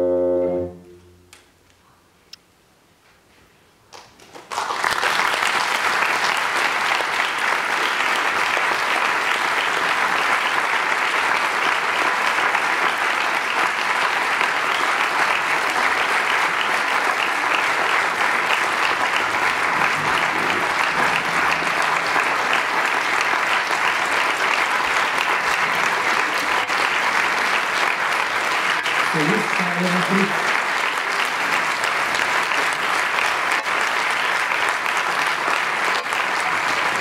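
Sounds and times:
music: 0:00.0 - 0:01.2
audience applauding: 0:03.9 - 0:37.0.

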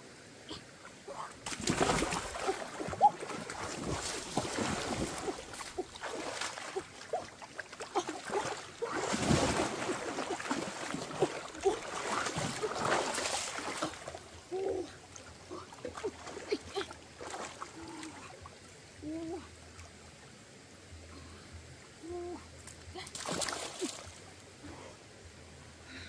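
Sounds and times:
water splashing and sloshing: 0:00.0 - 0:20.8, 0:21.9 - 0:25.2
gurgling water plops: 0:01.4 - 0:14.3.

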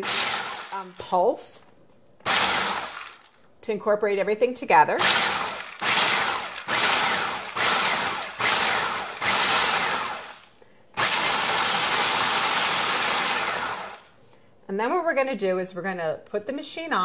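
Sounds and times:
food processor pulsing: 0:00.0 - 0:01.1, 0:02.2 - 0:03.2, 0:05.0 - 0:14.1.

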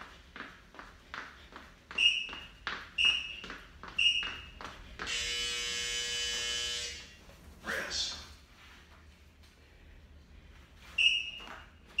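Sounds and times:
long buzzer tone: 0:05.1 - 0:07.2.

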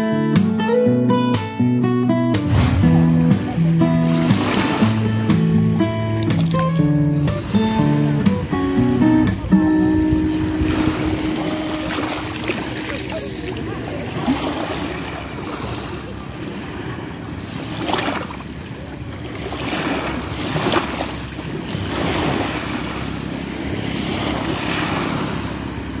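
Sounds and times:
small waves breaking on shore: 0:02.5 - 0:26.0
wind on microphone: 0:06.1 - 0:12.8.

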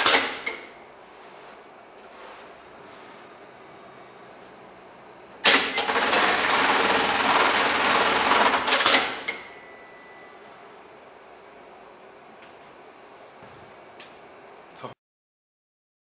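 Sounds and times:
industrial sewing machine running: 0:05.4 - 0:09.4
sewing machine clacks: 0:05.5 - 0:09.3.

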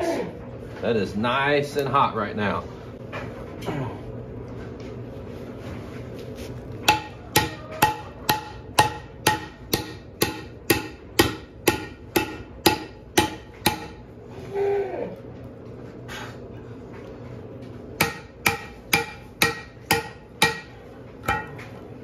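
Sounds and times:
hammer striking hot steel: 0:06.8 - 0:14.0, 0:18.0 - 0:21.7.

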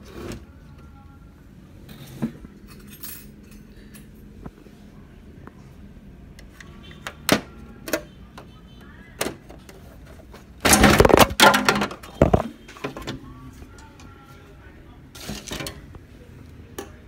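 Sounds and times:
plastic clattering and rattling: 0:09.2 - 0:13.2
plastic parts clicking and knocking: 0:10.6 - 0:13.2.

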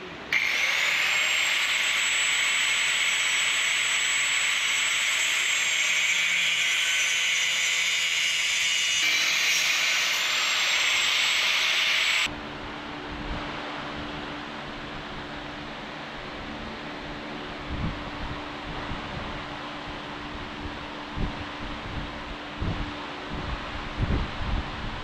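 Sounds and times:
angle grinder cutting metal: 0:00.3 - 0:12.3.

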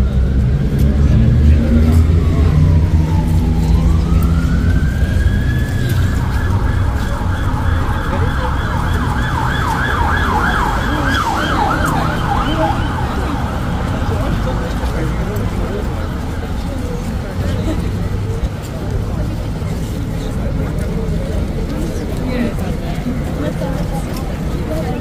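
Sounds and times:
emergency vehicle siren: 0:00.0 - 0:17.4
road traffic rumble: 0:00.0 - 0:25.0.

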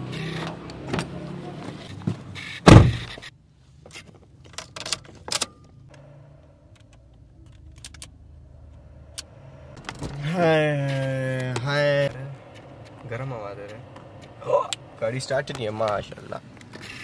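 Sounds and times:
outside noise: 0:00.0 - 0:17.0
car door shutting thunk: 0:02.7 - 0:03.2.

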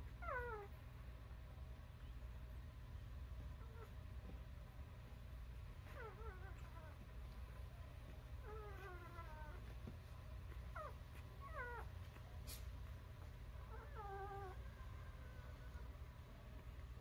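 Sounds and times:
puppies whimpering and squeaking: 0:00.0 - 0:00.8, 0:03.4 - 0:04.4, 0:05.6 - 0:17.0
low steady hum: 0:00.0 - 0:17.0.

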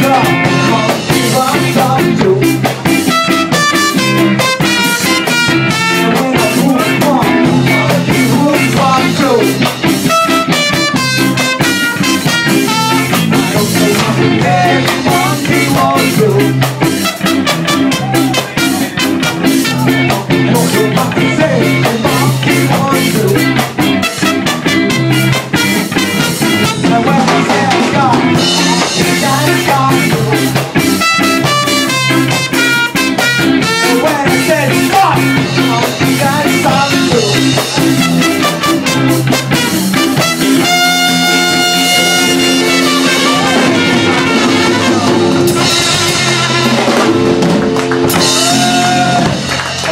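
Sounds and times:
drum kit: 0:00.0 - 0:49.9
electric guitar: 0:00.0 - 0:49.9.

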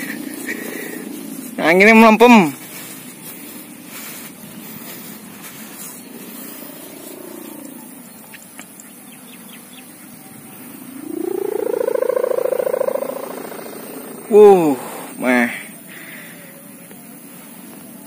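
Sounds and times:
kite hummer droning: 0:00.0 - 0:01.6, 0:10.4 - 0:15.2.

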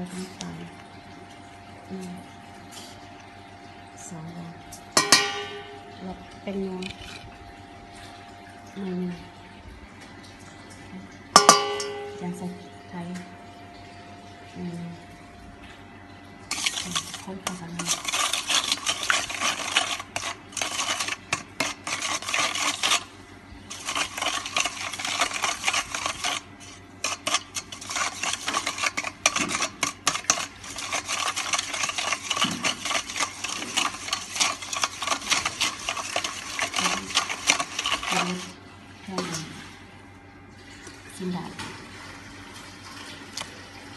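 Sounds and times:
whisk clinking in metal bowl: 0:05.0 - 0:05.8, 0:11.4 - 0:12.3, 0:16.5 - 0:23.1, 0:23.7 - 0:38.6.

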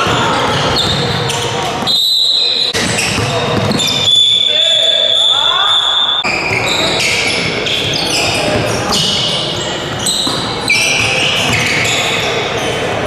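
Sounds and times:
basketball bouncing on court: 0:00.0 - 0:02.0, 0:02.7 - 0:04.2, 0:06.5 - 0:12.1
crowd and player voices: 0:00.0 - 0:13.0.

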